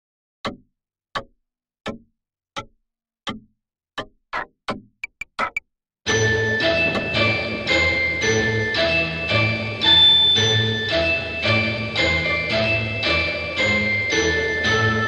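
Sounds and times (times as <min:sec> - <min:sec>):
loud music: 0:06.1 - 0:15.0.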